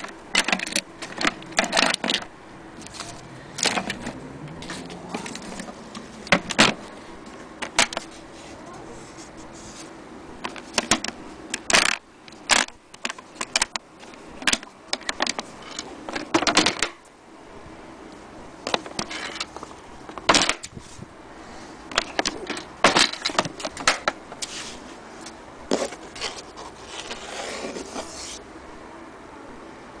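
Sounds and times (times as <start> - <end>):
short scraping rubs: 8.0 - 10.0, 24.3 - 28.4.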